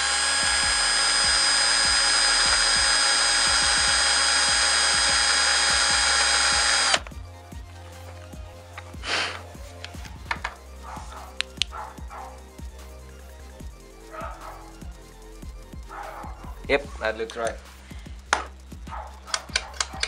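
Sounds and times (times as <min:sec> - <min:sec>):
electric drill drilling metal: 0:00.0 - 0:07.1.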